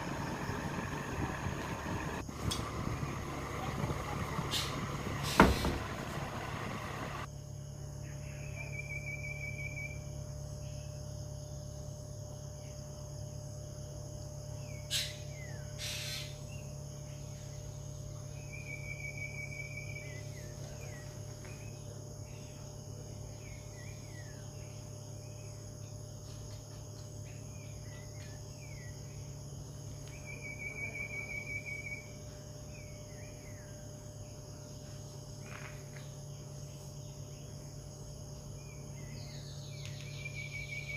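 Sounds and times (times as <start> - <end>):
low steady hum: 0.0 - 14.8
high insect drone: 0.0 - 40.9
bird-like chirps: 38.6 - 40.9.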